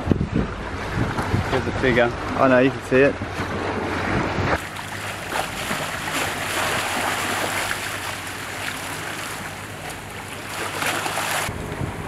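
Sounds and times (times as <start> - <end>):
water rushing along hulls: 0.0 - 12.0
wind: 0.0 - 12.0
steady low hum: 4.5 - 12.0.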